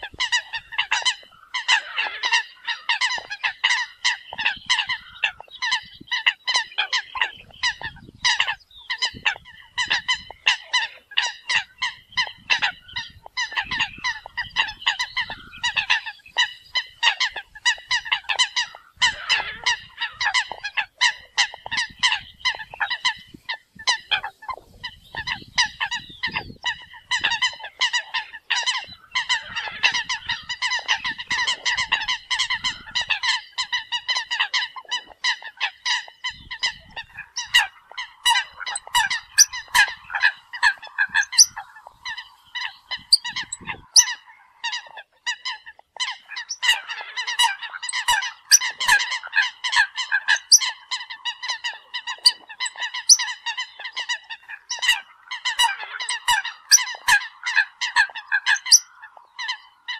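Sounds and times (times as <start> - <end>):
flock of coots calling: 0.0 - 59.9.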